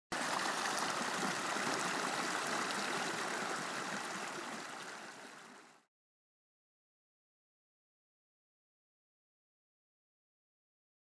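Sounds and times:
water rushing: 0:00.1 - 0:05.9.

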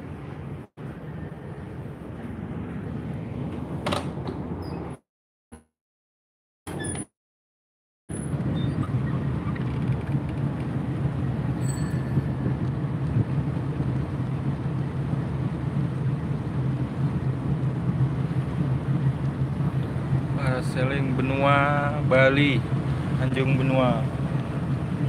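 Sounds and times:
boat engine droning: 0:08.1 - 0:25.0
wind and water hiss: 0:10.1 - 0:25.0.

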